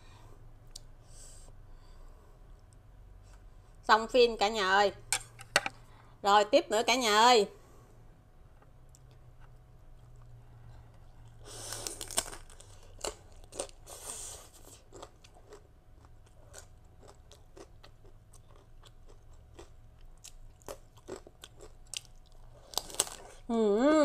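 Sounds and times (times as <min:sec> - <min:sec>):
chewing with sharp crackles: 0:08.9 - 0:23.4
crisp bite of rice cracker: 0:11.5 - 0:15.6, 0:18.5 - 0:23.4.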